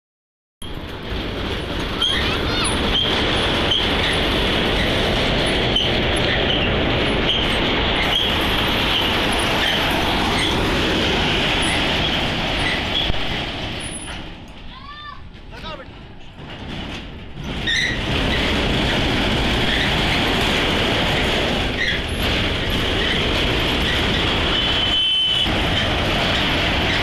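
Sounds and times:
short high squeak: 2.0s - 3.1s, 17.6s - 18.0s.

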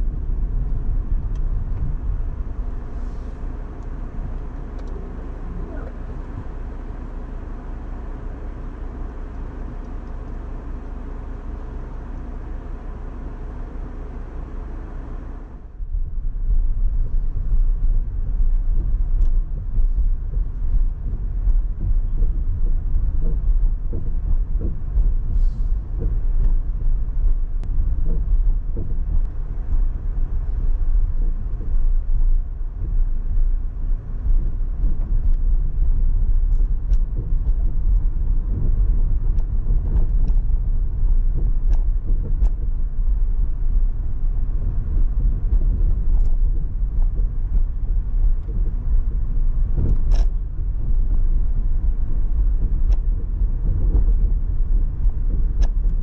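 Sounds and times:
car road and engine rumble: 0.0s - 56.0s
faint ticks: 18.5s - 26.6s.

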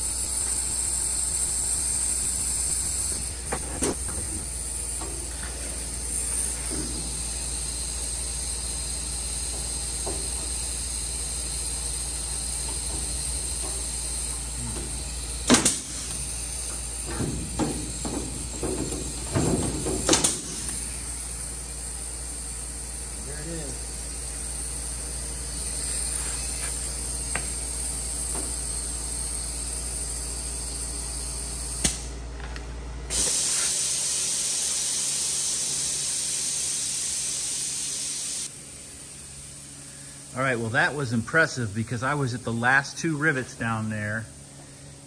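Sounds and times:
steady hum and hiss: 0.0s - 45.0s
rivet puller hissing snap: 15.4s - 17.6s, 20.1s - 20.9s, 31.7s - 32.1s.

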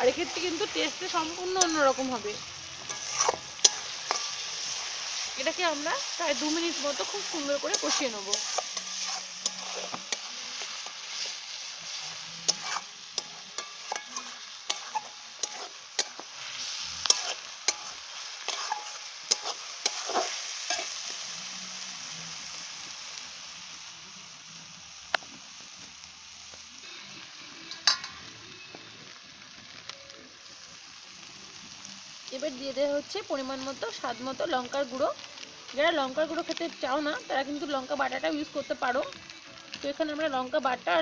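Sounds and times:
paste sizzling in hot oil: 0.0s - 41.0s
metal spatula scraping and tapping pan: 2.8s - 4.8s, 6.3s - 11.4s, 12.4s - 16.3s, 17.0s - 21.0s, 27.7s - 28.3s.

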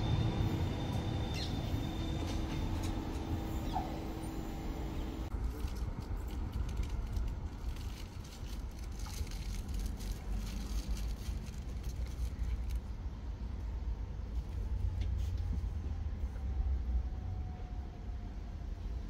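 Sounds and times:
tram motor whine: 0.0s - 5.5s.

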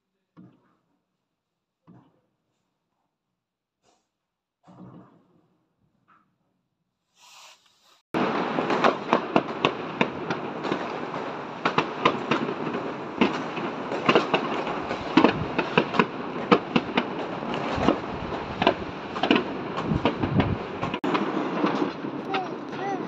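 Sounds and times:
continuous fireworks crackle: 8.2s - 23.0s
fireworks bangs and pops: 8.2s - 23.0s.

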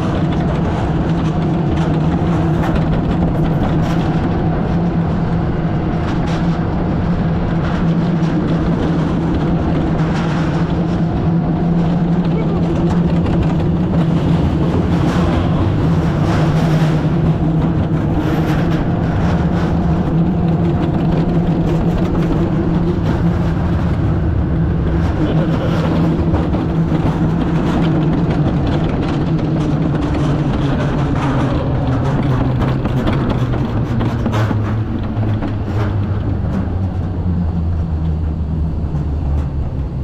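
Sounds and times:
sled rolling down metal trough: 0.0s - 37.4s
constant low hum: 0.0s - 40.0s.

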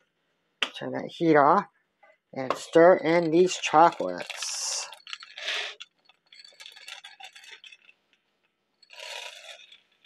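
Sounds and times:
chocolate chips pouring rattle: 2.5s - 10.0s
light clicks and clinks: 2.6s - 10.0s.

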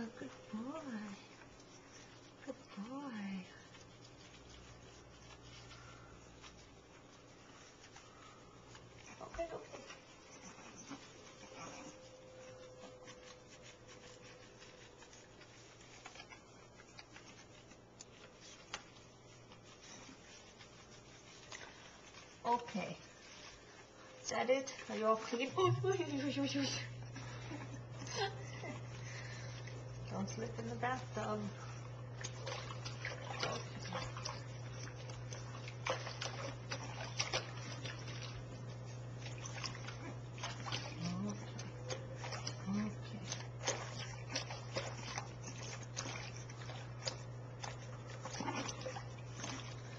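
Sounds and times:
low steady hum: 0.0s - 49.9s
rubbing and handling noise: 0.0s - 49.9s
water splashing in sink: 30.3s - 49.9s.

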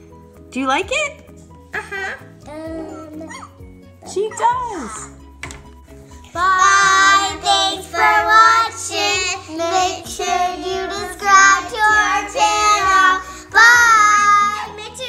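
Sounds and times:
girls singing together: 6.3s - 15.0s.

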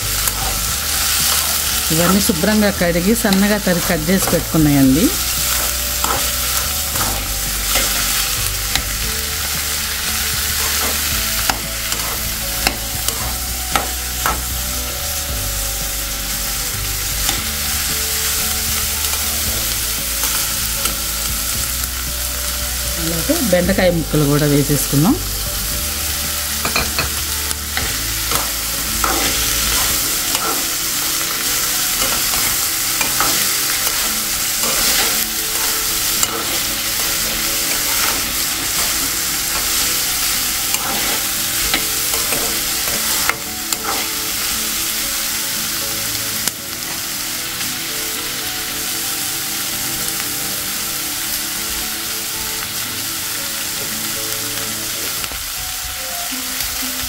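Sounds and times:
vegetables sizzling in hot oil: 0.0s - 57.0s
metal spoon scraping a pan: 0.1s - 14.6s, 26.6s - 44.6s.

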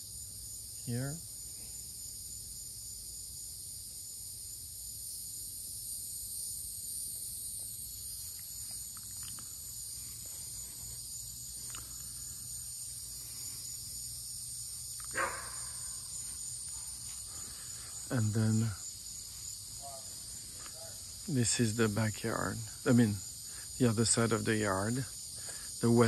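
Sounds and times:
insects chorus: 0.0s - 26.0s
faint ticks: 7.6s - 9.8s, 11.5s - 12.2s.

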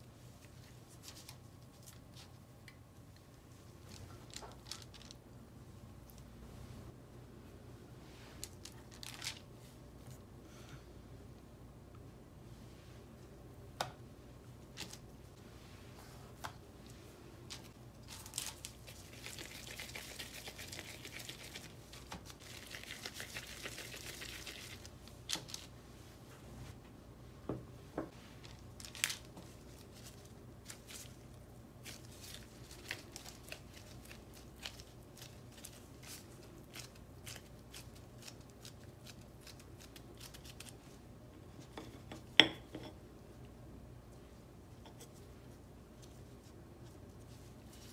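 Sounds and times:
parchment paper rustling: 3.4s - 5.2s, 17.4s - 25.8s, 28.1s - 41.0s.

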